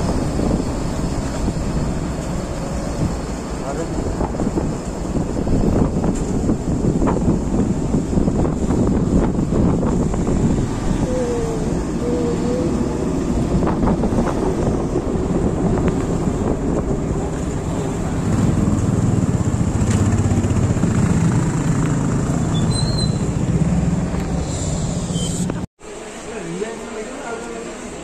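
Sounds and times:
wind and road noise: 0:00.0 - 0:25.7
motorcycle engine running: 0:18.0 - 0:22.6.

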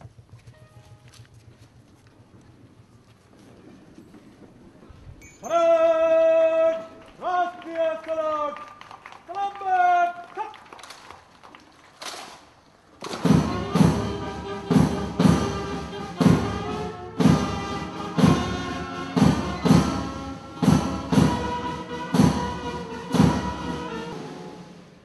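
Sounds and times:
steady drum beat: 0:13.1 - 0:25.0
sustained wind instrument notes: 0:13.2 - 0:25.0.

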